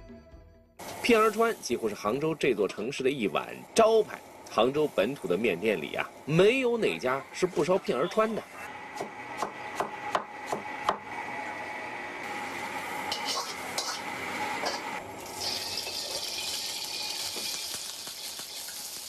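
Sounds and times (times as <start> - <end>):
frying in a wok: 0.8 - 10.8, 11.4 - 19.0
kitchen noise: 13.0 - 19.0.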